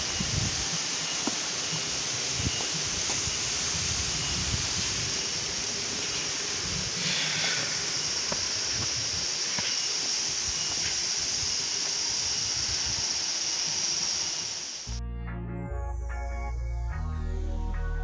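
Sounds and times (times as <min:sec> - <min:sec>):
footsteps on stone steps: 0:01.2 - 0:01.5, 0:08.3 - 0:11.1.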